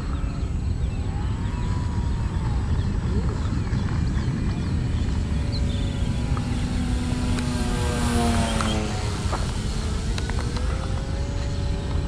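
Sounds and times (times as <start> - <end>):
low rumble: 0.0 - 12.0
model plane motor whining: 4.6 - 12.0.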